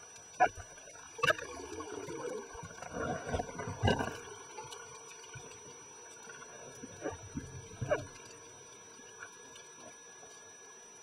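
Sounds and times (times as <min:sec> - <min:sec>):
muffled underwater wash: 0:00.0 - 0:11.0.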